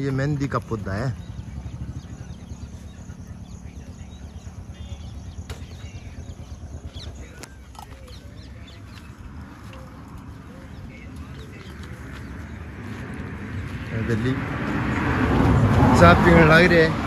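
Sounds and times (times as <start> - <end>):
bird chirps and calls: 0.0 - 13.2.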